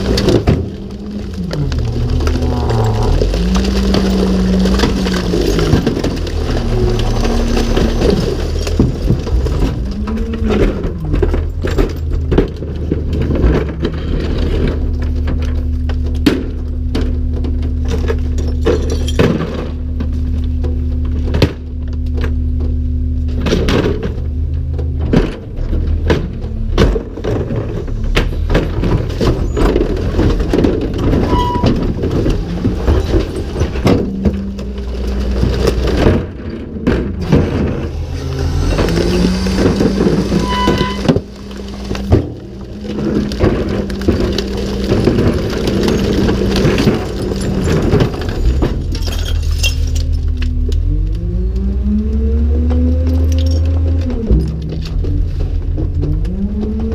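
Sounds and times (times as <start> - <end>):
cart and recyclables clattering: 0.0 - 51.2, 52.5 - 56.9
truck engine running: 0.0 - 56.9
hydraulic cart tipper lifting: 23.3 - 50.9.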